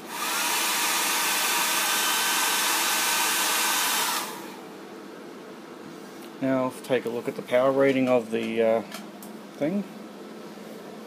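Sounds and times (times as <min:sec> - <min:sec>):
hair dryer running: 0:00.0 - 0:04.7.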